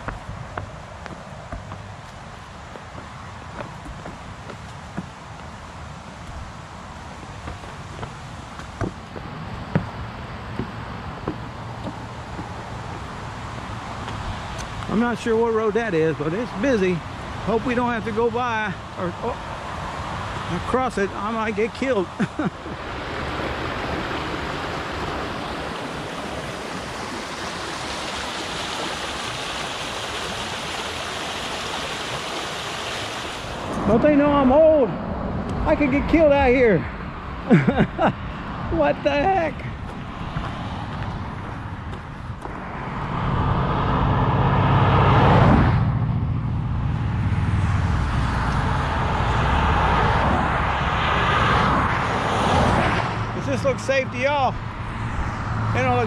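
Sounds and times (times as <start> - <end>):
steady road noise: 0.0 - 56.0
creek rushing over stones: 10.5 - 34.4
car passing by: 19.2 - 37.0, 39.6 - 56.0.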